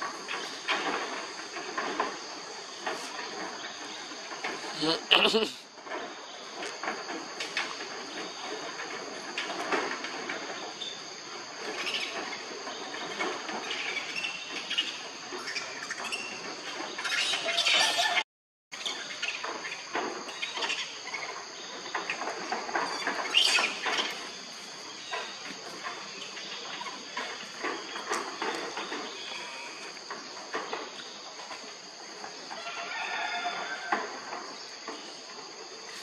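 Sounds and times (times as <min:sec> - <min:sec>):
high insect drone: 0:00.0 - 0:18.2, 0:18.8 - 0:36.0
macaques squeaking: 0:04.7 - 0:05.6, 0:17.0 - 0:18.2.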